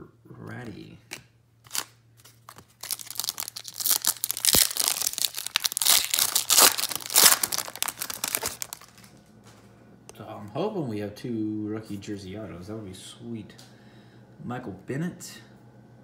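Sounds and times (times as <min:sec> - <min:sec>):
foil wrapper tearing and crinkling: 0:01.6 - 0:09.1.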